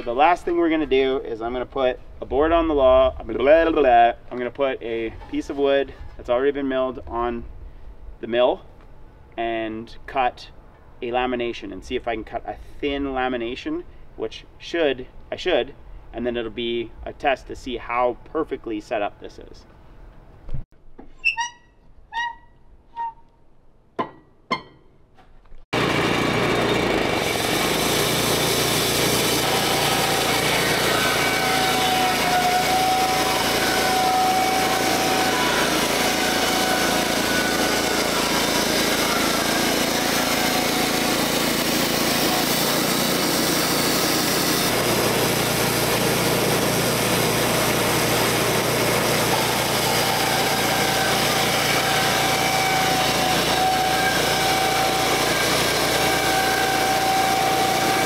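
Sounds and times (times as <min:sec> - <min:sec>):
thin whistling tones: 0:21.2 - 0:23.3
band saw cutting board: 0:25.8 - 0:58.0
gas engine droning: 0:25.8 - 0:58.0.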